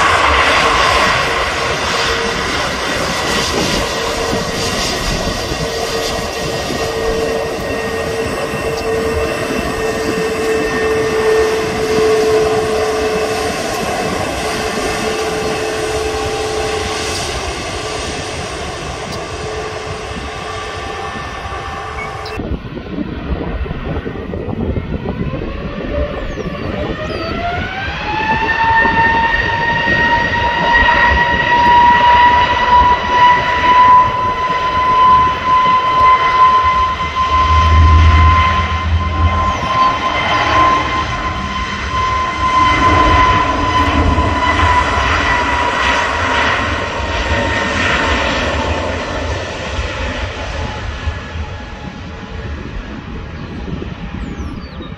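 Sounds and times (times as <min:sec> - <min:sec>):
jet engines whining: 0:00.0 - 0:54.9
deep rumble: 0:34.1 - 0:53.1.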